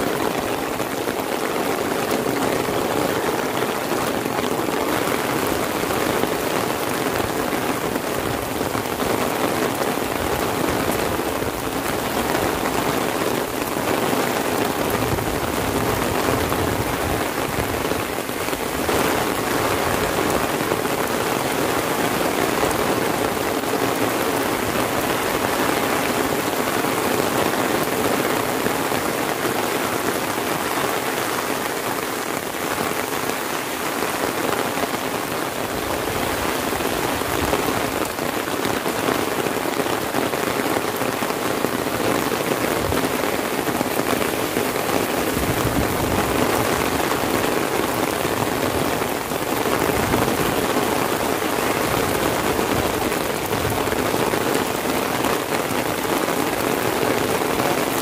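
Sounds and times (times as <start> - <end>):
heavy rain on umbrella: 0.0 - 58.0.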